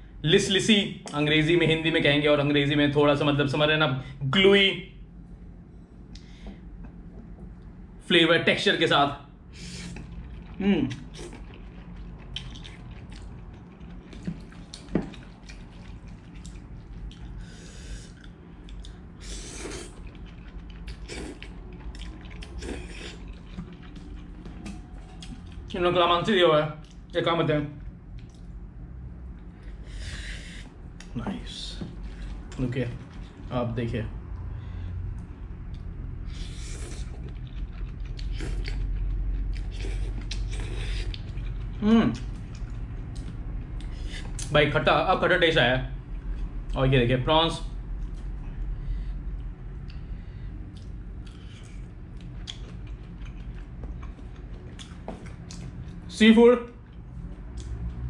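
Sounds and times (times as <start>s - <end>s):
slurping noodles: 9.5s - 13.2s, 19.2s - 20.2s, 20.8s - 24.1s, 36.2s - 37.4s, 38.2s - 38.9s, 39.6s - 41.4s
wet chewing: 9.6s - 25.8s, 27.8s - 28.6s, 35.6s - 44.5s, 49.4s - 56.1s.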